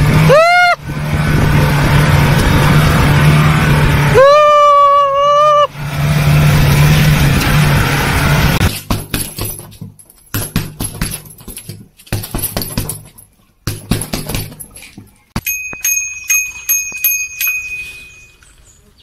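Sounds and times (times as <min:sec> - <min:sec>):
jeep engine running: 0:00.0 - 0:08.7
punches on a punching bag: 0:08.8 - 0:14.8
bicycle bell ringing: 0:15.4 - 0:18.6.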